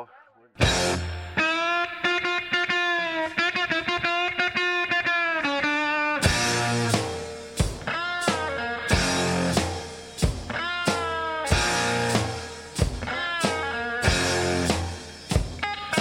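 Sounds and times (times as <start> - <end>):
sharp drum hits: 0.6 - 1.6, 6.3 - 16.0
electric guitar sustained notes: 0.6 - 9.8, 10.5 - 16.0.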